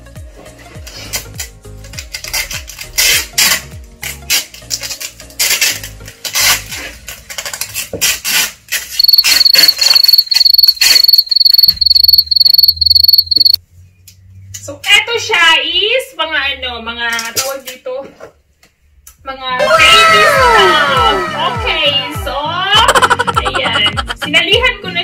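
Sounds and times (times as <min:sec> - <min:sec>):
sticky tape tearing: 0:00.9 - 0:10.0
high even chirping: 0:09.0 - 0:13.6.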